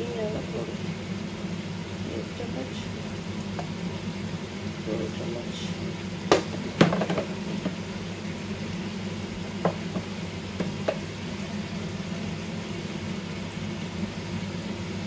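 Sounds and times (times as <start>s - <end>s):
chicken frying in a pot: 0.0s - 15.0s
gas burner low hum: 0.0s - 15.0s
sharp knocks: 6.3s - 7.8s.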